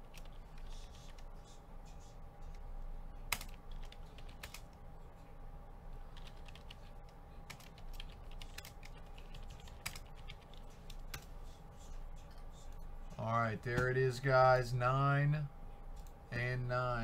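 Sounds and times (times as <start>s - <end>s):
computer keyboard typing: 0.0s - 1.2s, 3.3s - 4.8s, 6.1s - 11.3s
faint steady hum: 0.0s - 17.0s.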